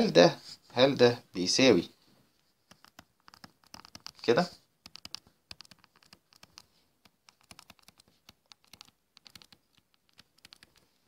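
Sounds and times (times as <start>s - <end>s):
stylus tapping on touchscreen: 2.7s - 4.2s, 4.8s - 10.9s.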